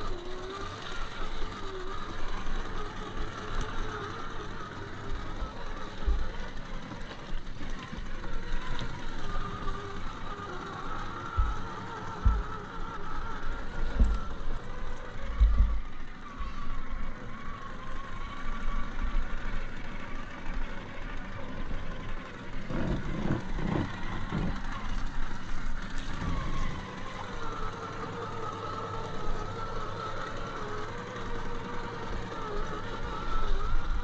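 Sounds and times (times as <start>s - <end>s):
electric motor whine: 0.0s - 34.0s
low thumps: 11.4s - 12.6s, 15.4s - 15.9s.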